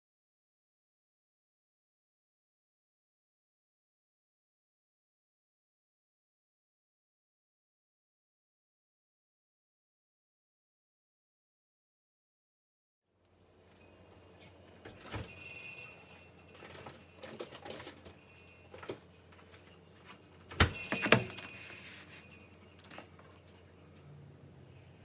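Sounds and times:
faint low hum: 0:13.2 - 0:25.0.

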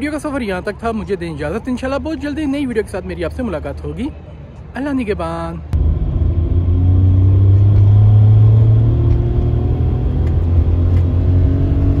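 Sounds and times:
car road and engine rumble: 0:05.6 - 0:12.0.

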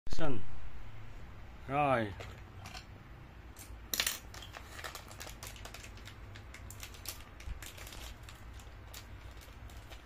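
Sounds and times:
plastic packaging clicks and rustles: 0:04.0 - 0:10.0.

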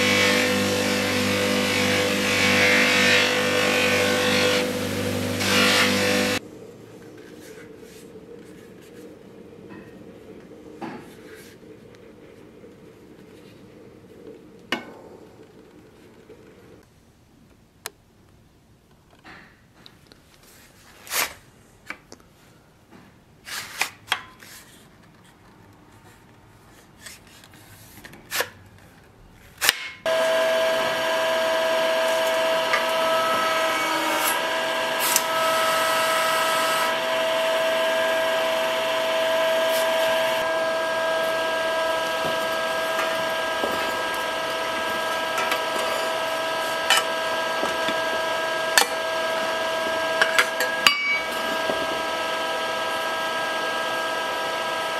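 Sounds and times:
press motor whine: 0:30.1 - 0:54.9.

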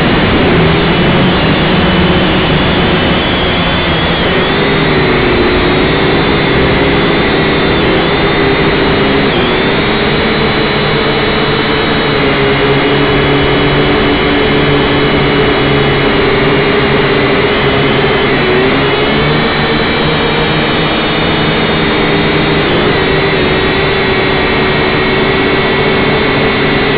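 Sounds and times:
drone motors and propellers whirring: 0:00.0 - 0:26.9.

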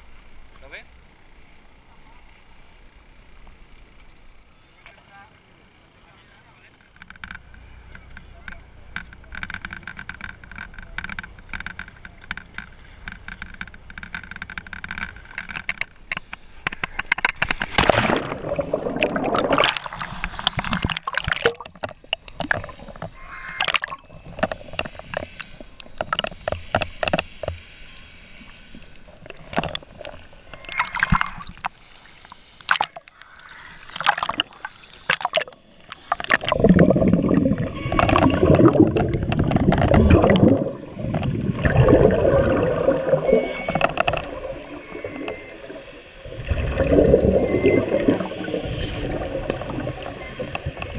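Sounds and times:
steady hum with level tones: 0:00.0 - 0:50.9
underwater air bubbling: 0:17.3 - 0:27.2, 0:29.0 - 0:50.9.

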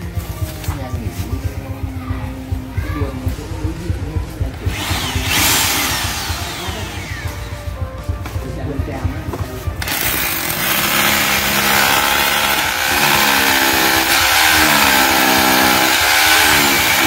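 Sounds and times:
drill grinding concrete: 0:04.6 - 0:07.6, 0:09.8 - 0:17.0.

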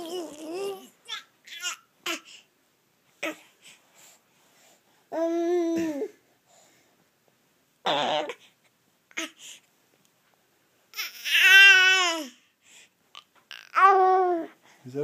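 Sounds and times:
baby babbling and squealing: 0:00.0 - 0:02.3, 0:07.9 - 0:08.4, 0:11.0 - 0:12.4, 0:13.5 - 0:14.5.

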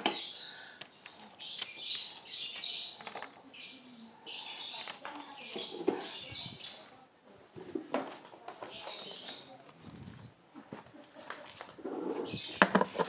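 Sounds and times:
small birds chirping: 0:00.0 - 0:07.1, 0:08.6 - 0:10.4, 0:12.2 - 0:12.8.

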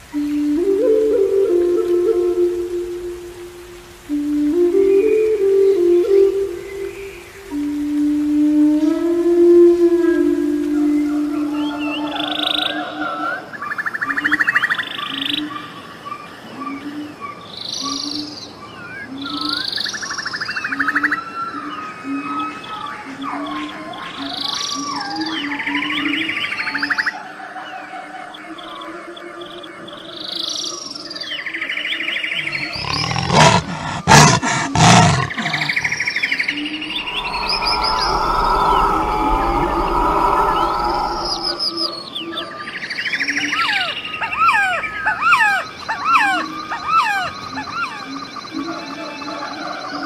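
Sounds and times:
birds chirping and trilling: 0:11.5 - 0:50.0
frog calling: 0:32.6 - 0:42.0
big cat roaring: 0:32.7 - 0:36.0, 0:36.9 - 0:41.9
bird whistles and chirps: 0:35.7 - 0:48.5.

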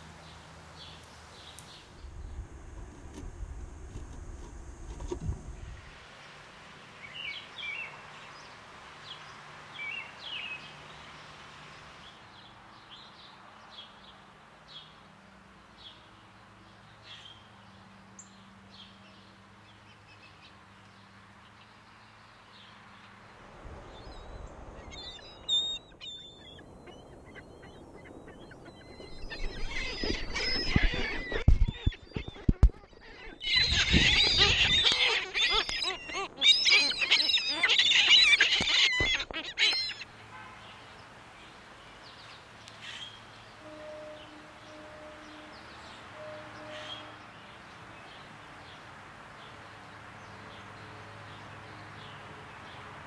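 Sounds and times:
songbirds chirping: 0:00.0 - 0:02.9, 0:04.8 - 0:53.0
faint hiss: 0:00.0 - 0:29.8
gulls calling loudly: 0:23.9 - 0:41.1.

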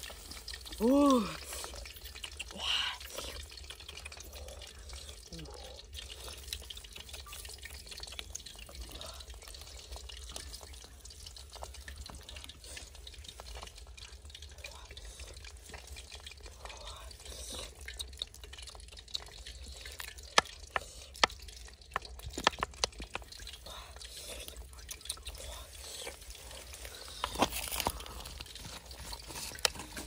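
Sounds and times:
sharp drips and ticks: 0:00.0 - 0:30.0
thick liquid pouring: 0:00.0 - 0:30.0.

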